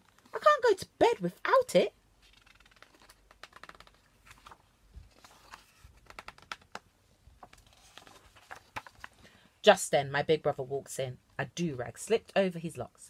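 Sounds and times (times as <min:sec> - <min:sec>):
paper pages rustling: 0:02.2 - 0:09.3.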